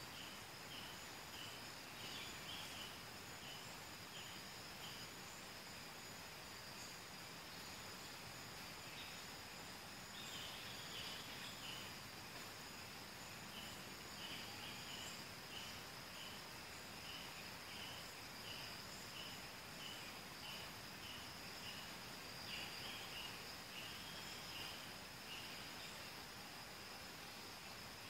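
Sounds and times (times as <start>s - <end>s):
insect lower chirp: 0.0s - 28.0s
soft hiss: 0.0s - 28.0s.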